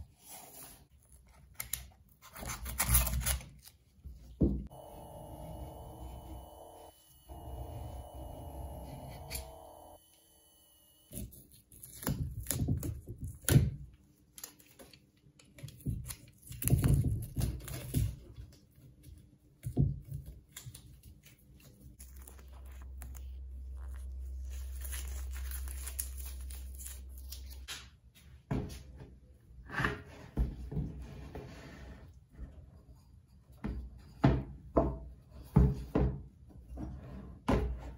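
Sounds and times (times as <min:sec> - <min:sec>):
tape scraping tearing and crinkling: 0:01.2 - 0:03.8, 0:20.5 - 0:27.7
low steady hum: 0:04.7 - 0:11.1.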